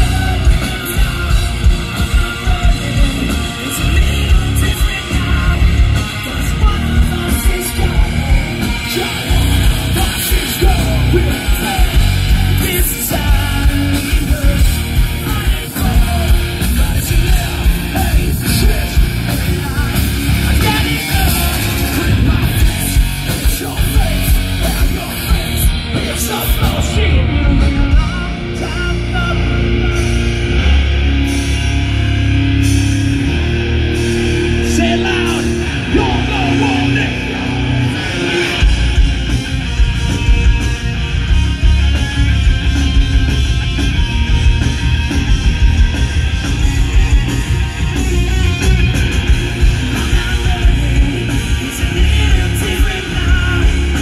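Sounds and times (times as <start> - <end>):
person singing: 0.0 - 30.9, 46.7 - 54.0
bass guitar: 0.0 - 54.0
distorted electric guitars: 0.0 - 54.0
drums: 0.0 - 54.0.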